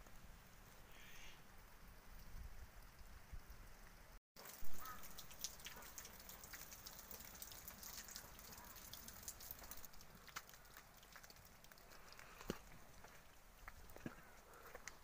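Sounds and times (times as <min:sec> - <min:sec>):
wet snow pattering: 0:01.7 - 0:15.0.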